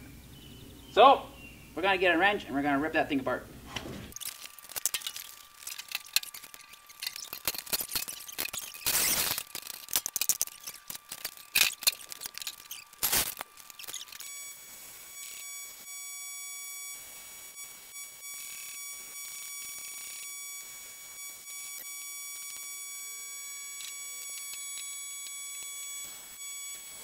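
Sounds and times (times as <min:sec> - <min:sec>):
metal rasping: 0:03.7 - 0:14.4.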